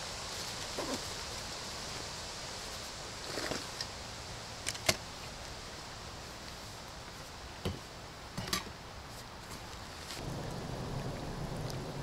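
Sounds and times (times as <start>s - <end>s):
camping gear clicking and knocking: 4.6s - 5.0s, 8.4s - 8.8s.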